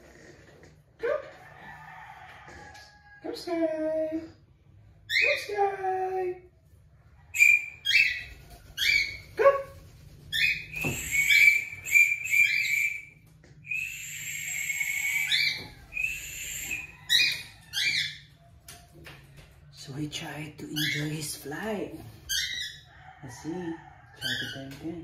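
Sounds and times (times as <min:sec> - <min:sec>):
cockatiel calling: 0:10.3 - 0:18.2.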